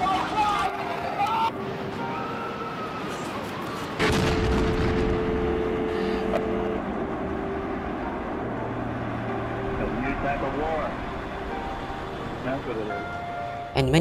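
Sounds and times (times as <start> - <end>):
loud explosion: 4.0 - 5.5.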